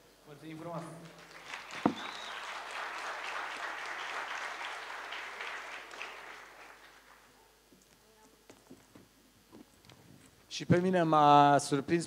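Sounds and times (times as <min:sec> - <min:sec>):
audience applauding: 0:01.1 - 0:07.4.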